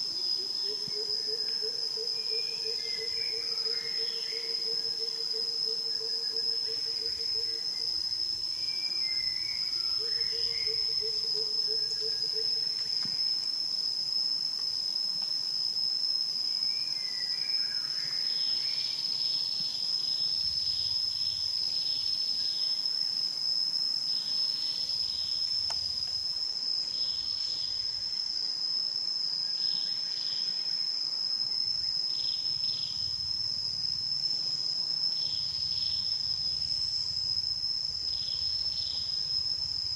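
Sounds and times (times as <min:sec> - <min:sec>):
insect drone: 0:00.0 - 0:39.9.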